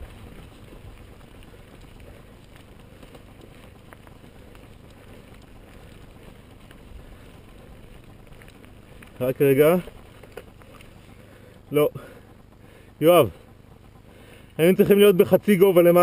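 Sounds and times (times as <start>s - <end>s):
bike tyres rumbling on stony track: 0.0s - 13.4s
bike rattling: 0.0s - 16.0s
faint clicks: 0.1s - 9.2s.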